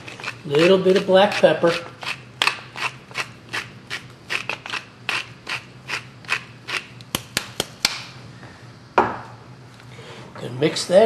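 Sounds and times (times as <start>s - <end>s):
pepper mill grinding: 0.0s - 7.2s.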